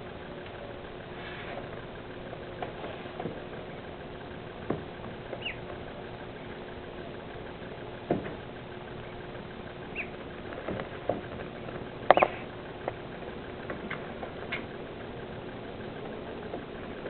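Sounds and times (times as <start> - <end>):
ducklings peeping: 5.2 - 6.6, 9.0 - 10.3, 12.1 - 12.6.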